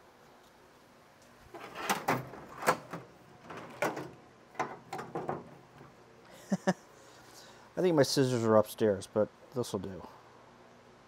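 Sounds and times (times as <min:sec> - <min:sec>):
tools knocking and clattering: 0:01.8 - 0:05.9.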